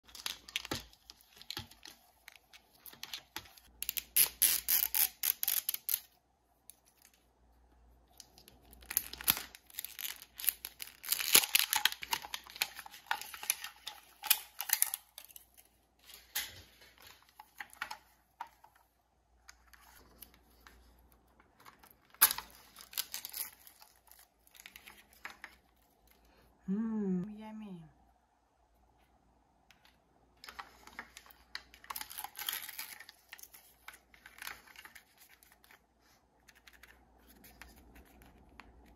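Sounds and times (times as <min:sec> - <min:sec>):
plastic wrapper crinkling and tearing: 0:00.0 - 0:07.2, 0:08.0 - 0:18.8, 0:21.5 - 0:26.2, 0:30.4 - 0:38.9.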